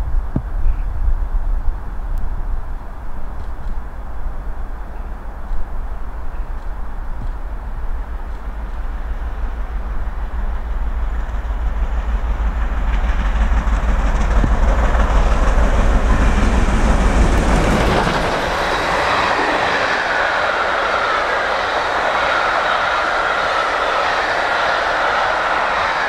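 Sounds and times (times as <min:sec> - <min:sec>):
steam locomotive exhaust rumble: 0:00.0 - 0:26.0
train wheels clattering over rail joints: 0:11.0 - 0:20.3.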